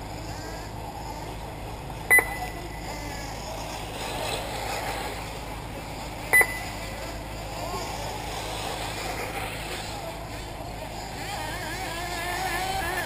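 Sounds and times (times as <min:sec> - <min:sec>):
steady background hum: 0:00.0 - 0:13.0
short electronic beeps: 0:02.1 - 0:02.6, 0:06.3 - 0:06.8.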